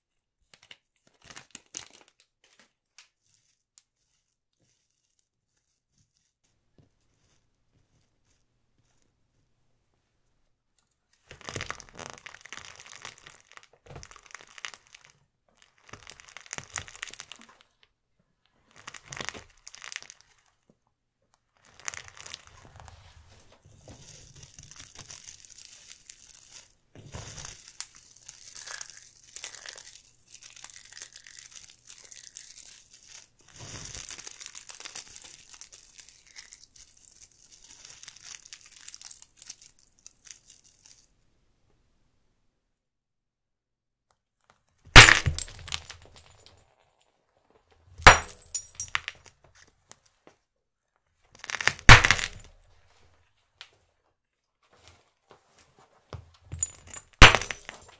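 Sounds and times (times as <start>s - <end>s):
plastic toys crunching under tyre: 11.2s - 17.8s, 18.6s - 20.6s, 21.6s - 41.1s, 51.3s - 52.7s.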